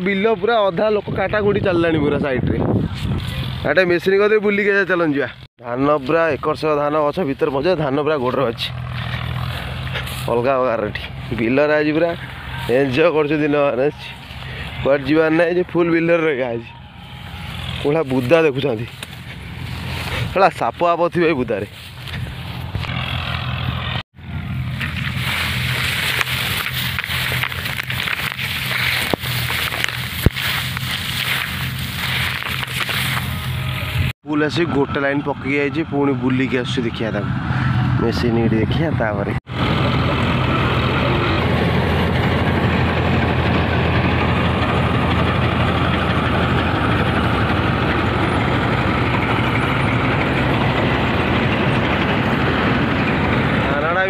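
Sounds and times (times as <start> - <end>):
combine harvester engine drone: 2.4 - 54.0
dry stalks rustling: 5.9 - 15.4, 16.9 - 34.1.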